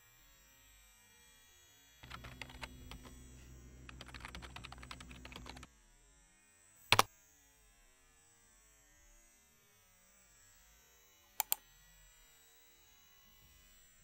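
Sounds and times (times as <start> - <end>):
keyboard typing: 2.0 - 5.7.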